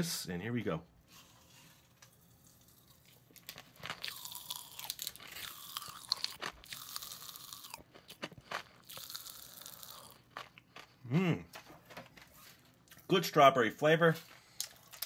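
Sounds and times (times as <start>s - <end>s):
popping candy crackling: 2.0s - 10.6s.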